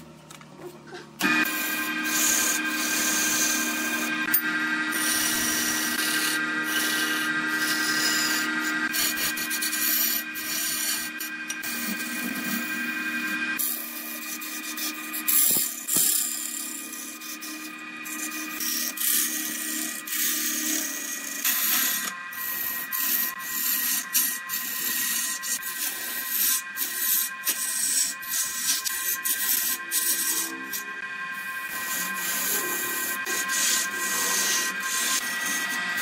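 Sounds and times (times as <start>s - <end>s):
steady high whine: 0.0s - 36.0s
lathe chisel scraping wood: 1.2s - 36.0s.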